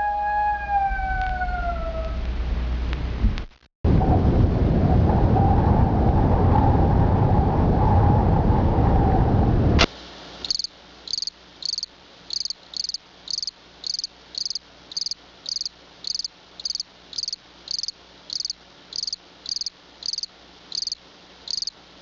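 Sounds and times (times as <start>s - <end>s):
cricket chirping: 10.4s - 21.8s.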